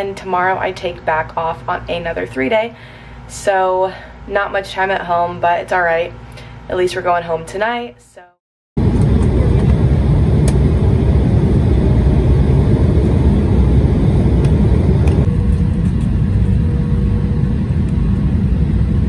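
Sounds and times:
faint steady hum: 0:00.0 - 0:08.2, 0:08.8 - 0:19.0
jet engines and rushing air: 0:08.8 - 0:19.0.

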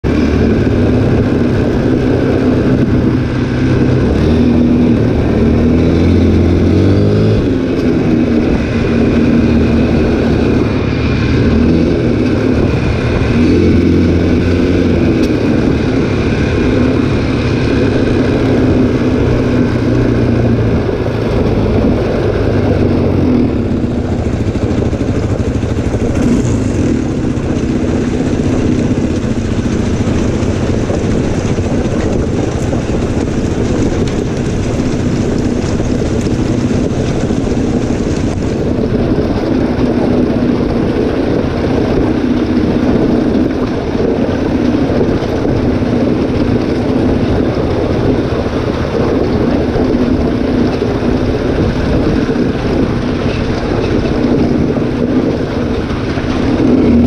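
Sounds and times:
quad bike engine revving: 0:00.0 - 0:57.0
wind and tyre noise: 0:00.0 - 0:57.0.

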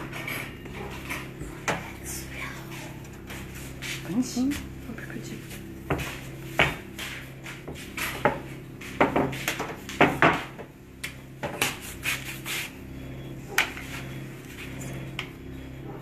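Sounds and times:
steady low hum: 0:00.0 - 0:16.0
rolling pin knocking and rolling: 0:05.9 - 0:11.8.

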